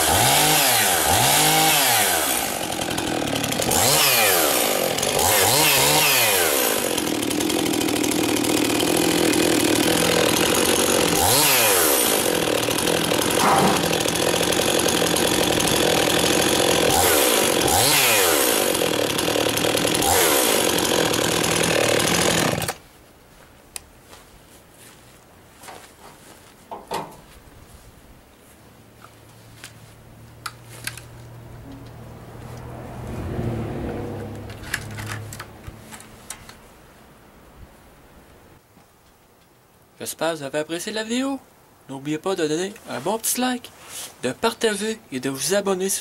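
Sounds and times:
chainsaw revving and idling: 0.0s - 22.8s.

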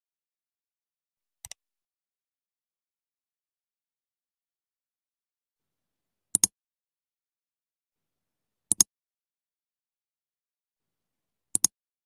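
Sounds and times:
mouse clicks: 11.5s - 11.8s.

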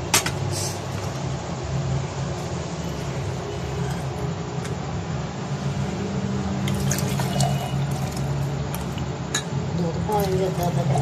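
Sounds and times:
low background hum: 0.0s - 11.0s
milk pouring into a glass: 6.6s - 9.1s.

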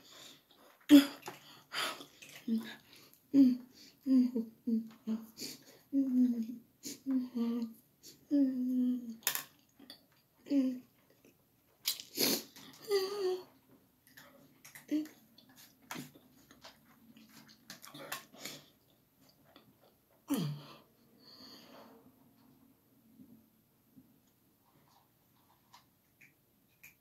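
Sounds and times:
person chewing: 11.0s - 12.8s.

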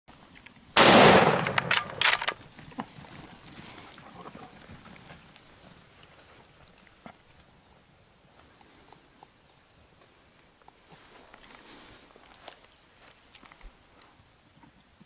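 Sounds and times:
rifle shot with echo: 0.8s - 2.4s.

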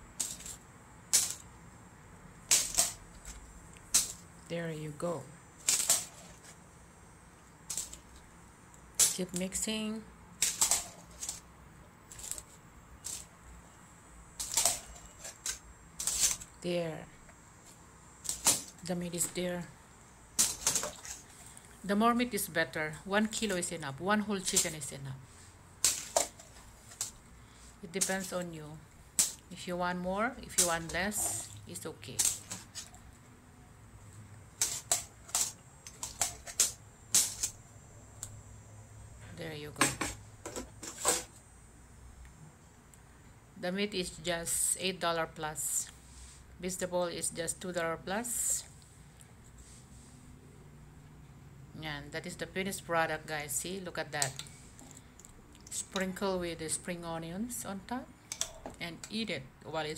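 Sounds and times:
metal utensils scraping steel pot: 30.6s - 31.6s.

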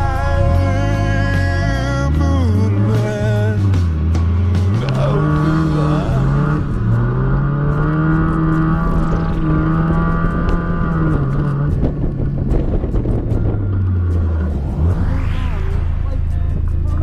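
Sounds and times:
car engine at high revs: 0.0s - 17.0s.

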